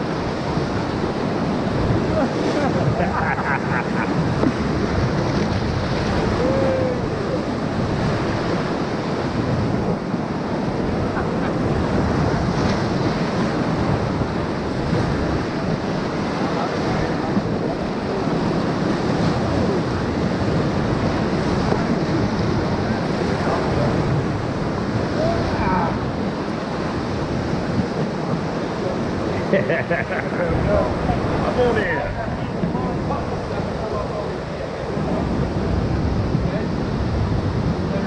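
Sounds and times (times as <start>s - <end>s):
whitewater rapids rushing: 0.0s - 38.0s.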